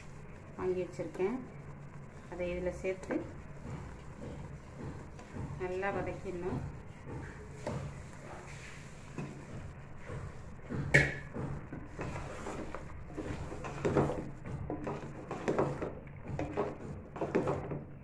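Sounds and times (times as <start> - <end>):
low steady hum: 0.0 - 18.0
spatula scraping metal pot: 11.2 - 17.9.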